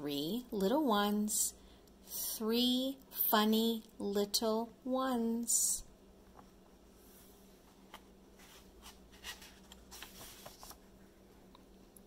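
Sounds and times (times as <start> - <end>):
faint steady hum: 0.0 - 12.0
paper page turning: 7.9 - 10.9.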